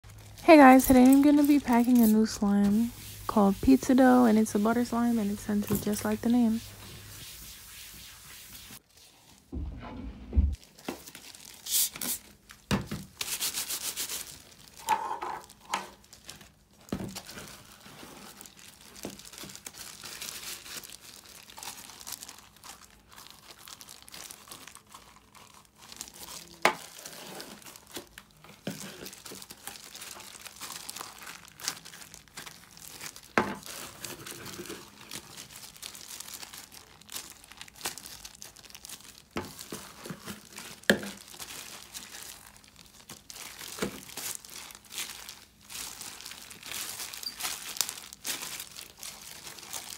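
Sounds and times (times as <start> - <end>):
slime crackling in plastic gloves: 0.0 - 9.5, 10.6 - 49.9.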